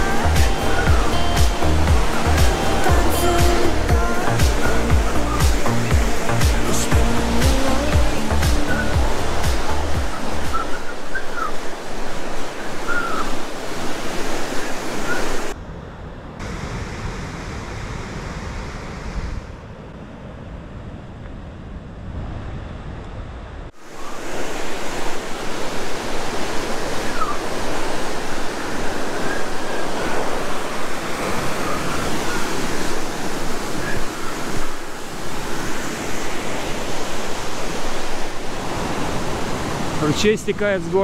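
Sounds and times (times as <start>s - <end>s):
heavy surf breaking on rocks: 0.0s - 15.6s, 23.7s - 41.0s
wind: 0.0s - 41.0s.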